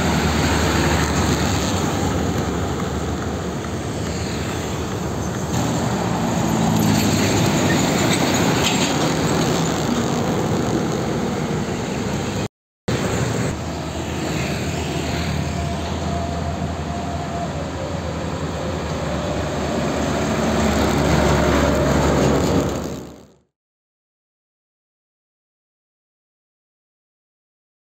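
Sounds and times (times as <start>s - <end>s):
diesel truck engines: 0.0s - 23.4s
truck passing close: 0.0s - 23.4s
tyre and traffic noise: 0.0s - 23.5s.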